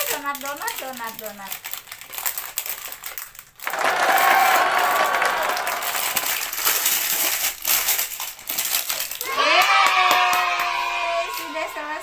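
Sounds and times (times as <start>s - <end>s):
plastic wrapper crinkling: 0.0s - 4.8s, 5.6s - 9.2s
plastic toy pieces clattering: 0.0s - 9.2s.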